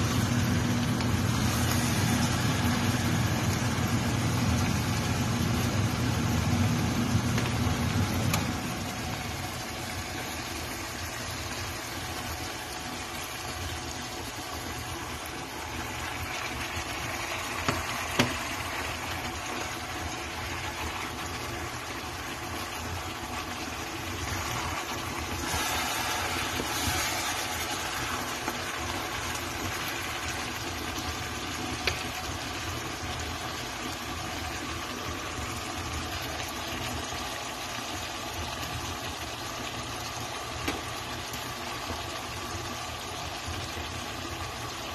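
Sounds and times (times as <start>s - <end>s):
steady motor hum: 0.0s - 44.9s
wooden spoon stirring in pot: 13.0s - 32.4s.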